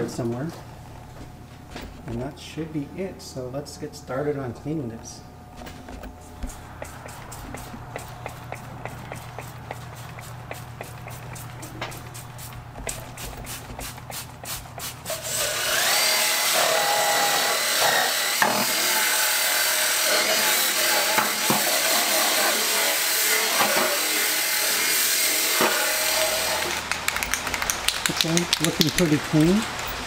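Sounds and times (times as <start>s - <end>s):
brush scrubbing metal: 5.9s - 16.1s
spray bottle squirting: 6.4s - 15.1s
cordless drill whining: 15.1s - 19.0s.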